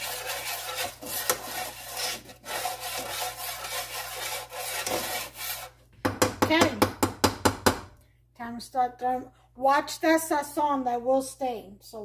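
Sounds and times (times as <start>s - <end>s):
utensil scraping frying pan: 0.0s - 5.8s.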